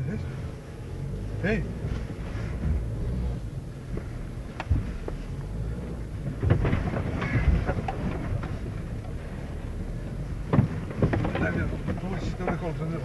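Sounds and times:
engine and tyre rumble: 0.0 - 13.0
vehicle jolting knocks: 6.0 - 13.0.

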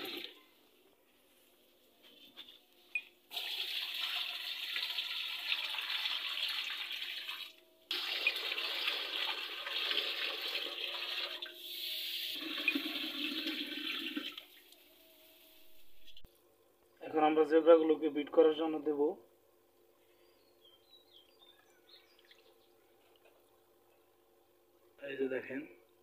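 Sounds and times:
water pouring into aquarium: 3.3 - 11.6, 12.3 - 14.7.

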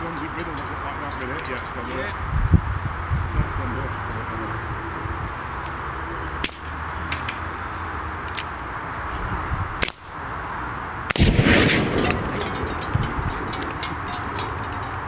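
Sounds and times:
air rifle shots: 11.1 - 12.7
explosion with deep boom: 11.1 - 13.8.

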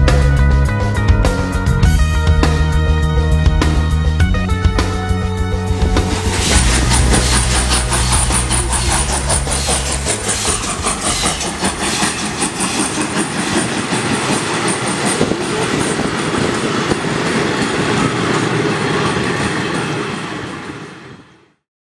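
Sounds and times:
train rolling past: 0.0 - 21.6
wheels clacking over rail joints: 5.9 - 20.6.

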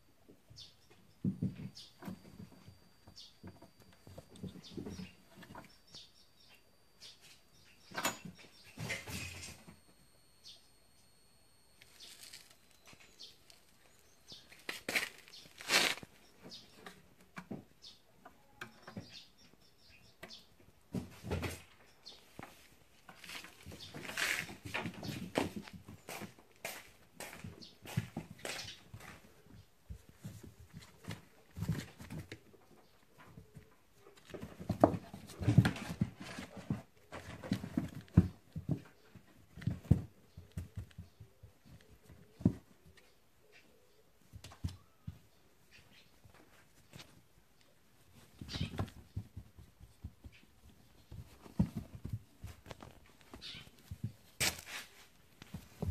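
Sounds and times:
rustling: 11.0 - 17.3, 20.9 - 55.9
kittens pattering on concrete: 21.1 - 55.9
kittens thumping in cardboard box: 34.2 - 42.8, 48.0 - 55.9.

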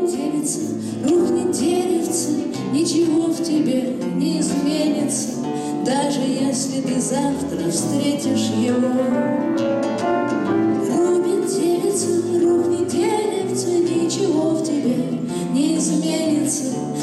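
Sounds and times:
acoustic guitar: 0.0 - 17.0
grand piano: 8.6 - 14.0.

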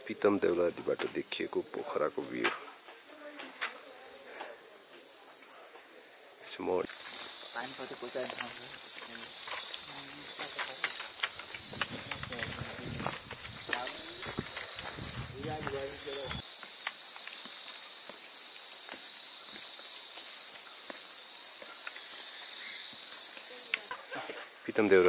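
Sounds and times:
insects buzzing high-pitched: 0.0 - 25.0
faint voices: 7.5 - 16.4.

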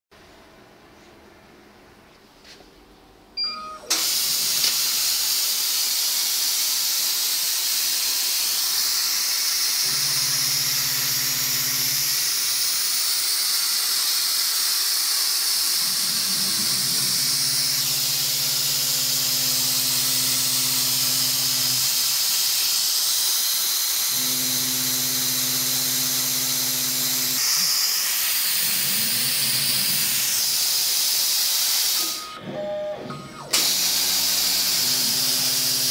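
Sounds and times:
gas hissing from nozzle: 3.9 - 32.2.

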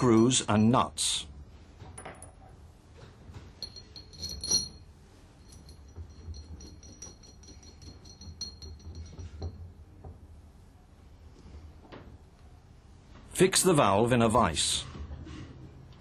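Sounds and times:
screws clinking on metal: 0.0 - 0.8, 3.6 - 9.7
high metallic ring: 3.6 - 9.6.

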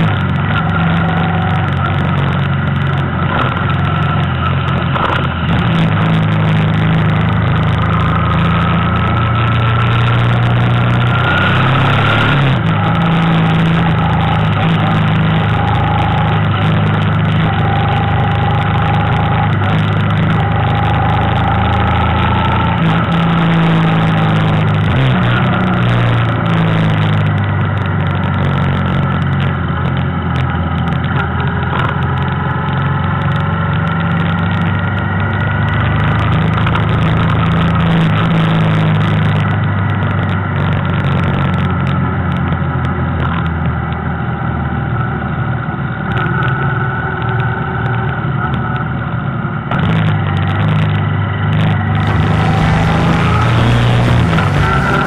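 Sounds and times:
vehicle engine cruising: 0.0 - 55.0.

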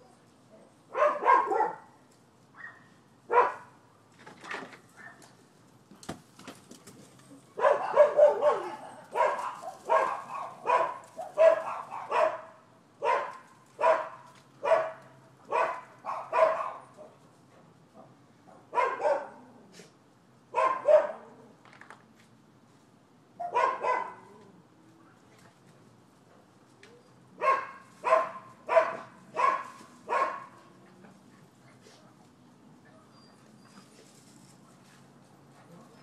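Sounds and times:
dogs barking: 0.9 - 1.9, 2.6 - 3.8, 7.6 - 17.2, 18.6 - 19.4, 20.5 - 21.3, 23.4 - 24.3, 27.4 - 30.7.

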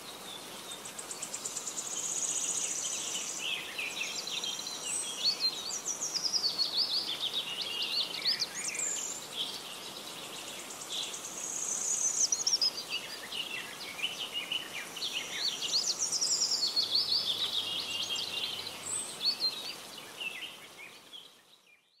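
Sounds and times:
birds chirping and trilling: 0.2 - 21.9.

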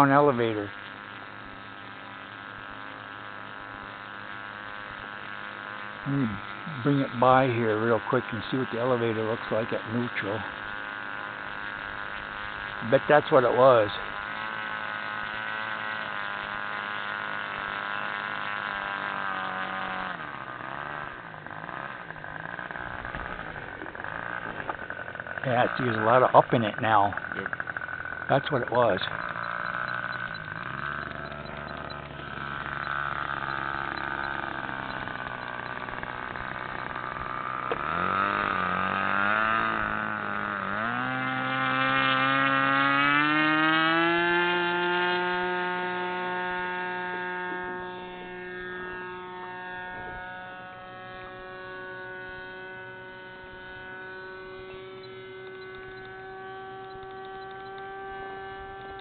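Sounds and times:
model plane motor: 0.0 - 59.0.

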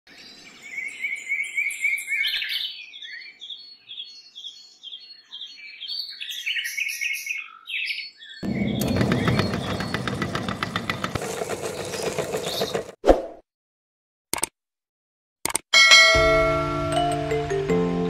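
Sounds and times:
small birds chirping: 0.1 - 12.9
meat grinder clattering: 8.5 - 13.0.

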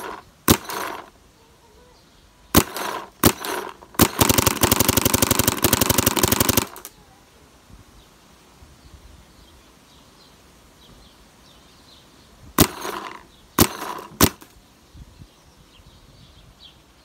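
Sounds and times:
paintball marker firing: 0.0 - 1.1, 2.6 - 6.9, 12.6 - 14.5.

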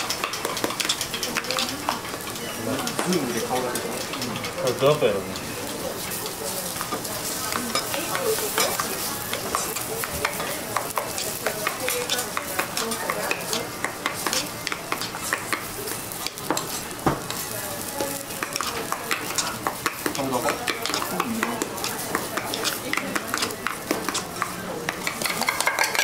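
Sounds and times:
metal utensils clicking: 0.0 - 6.1, 18.0 - 26.0
food sizzling on a griddle: 0.0 - 26.0.

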